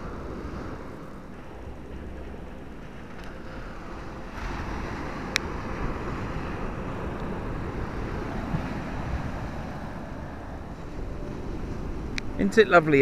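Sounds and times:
wind buffeting microphone: 0.0s - 13.0s
surf breaking on beach: 3.3s - 13.0s.

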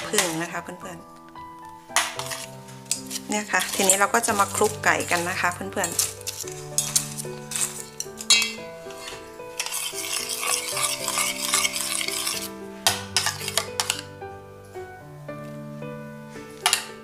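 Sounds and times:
utensils clinking on steel pot: 0.0s - 0.7s, 2.0s - 14.1s, 16.6s - 17.0s
background music with held notes: 0.0s - 17.0s
spoon scraping in saucepan: 2.0s - 14.1s.

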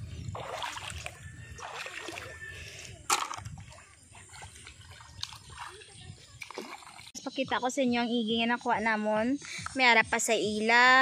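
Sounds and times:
pond water splashing: 0.0s - 7.2s.

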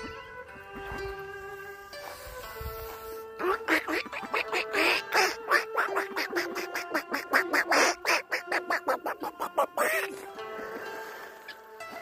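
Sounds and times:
music playing: 0.0s - 12.0s
ducks quacking: 2.8s - 12.0s.

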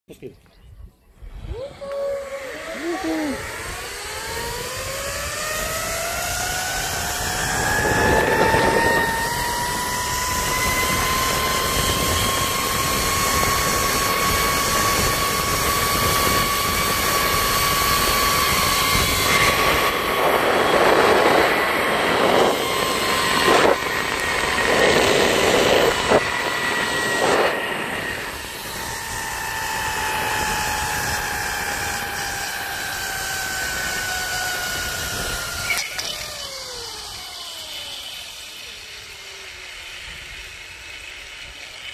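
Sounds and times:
pulley wheels whining on cable: 1.1s - 41.9s.

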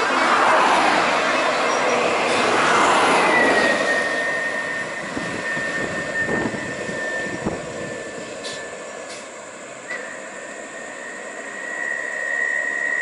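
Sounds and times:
vehicle engines and road noise: 0.0s - 13.0s
thin high whine: 3.1s - 13.0s.

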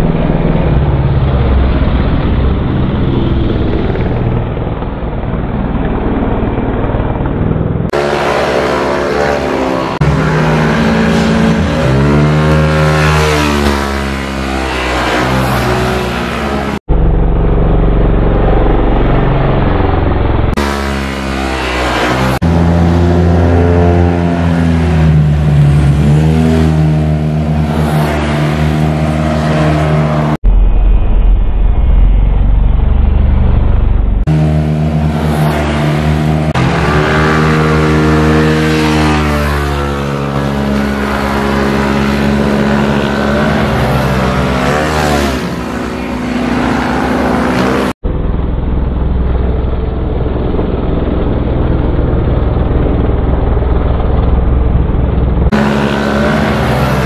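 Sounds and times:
scooter engines revving past: 7.9s - 16.8s, 34.3s - 48.0s, 55.5s - 57.0s.

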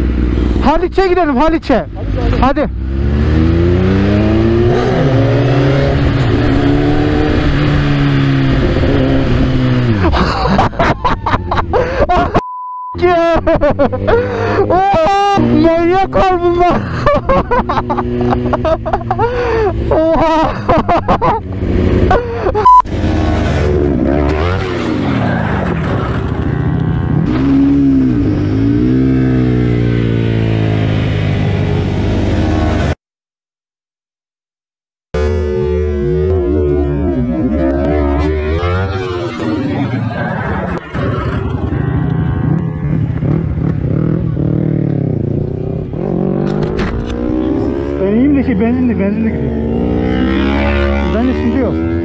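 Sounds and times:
motorcycle engine accelerating: 1.9s - 10.2s, 13.5s - 33.0s, 35.1s - 52.0s
second motorcycle engine: 35.2s - 52.0s.

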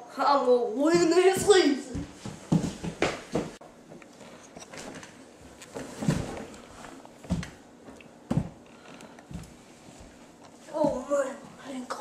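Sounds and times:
body thumping on wooden floor: 1.9s - 3.6s, 5.7s - 6.5s, 7.2s - 7.6s, 8.3s - 8.6s.

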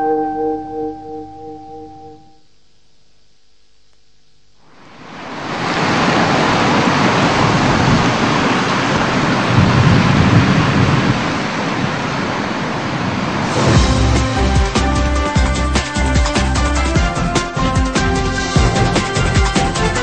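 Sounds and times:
loud rushing noise: 13.2s - 15.4s.

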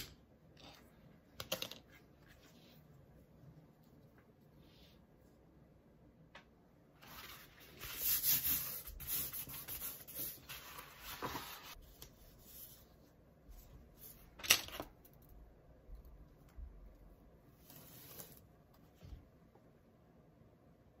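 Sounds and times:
paper rustling: 7.0s - 12.4s.

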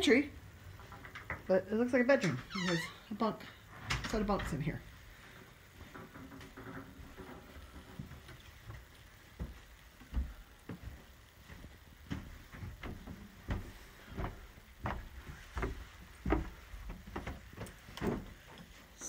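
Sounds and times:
footsteps on carpeted stairs: 4.2s - 19.0s.

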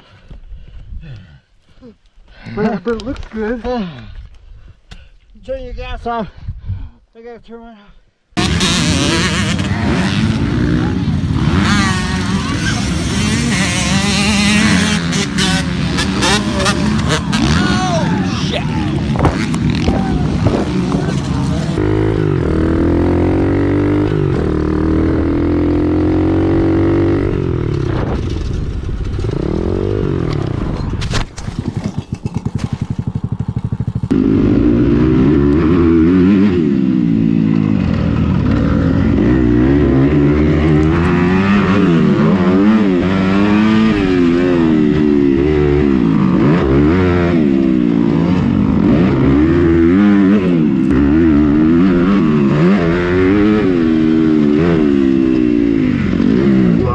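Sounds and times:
small motorcycle engine revving: 8.4s - 18.0s
motocross bike engine revving: 8.4s - 30.8s, 31.8s - 56.9s.

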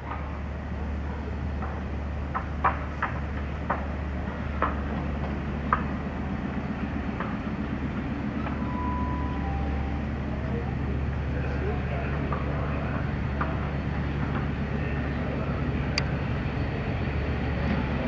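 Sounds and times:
diesel locomotive engine drone: 0.0s - 18.0s
two-note tone: 8.4s - 11.0s.

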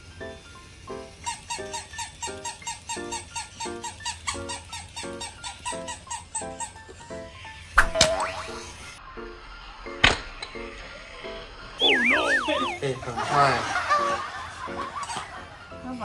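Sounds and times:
rising ringing tone: 11.8s - 12.8s
bouncy plucked background music: 11.8s - 13.0s.

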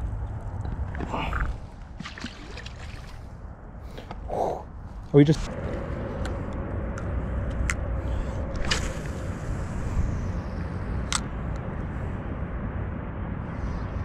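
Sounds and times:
wind rumble on microphone: 0.0s - 14.0s
fishing line swishing off reel: 8.5s - 9.2s.

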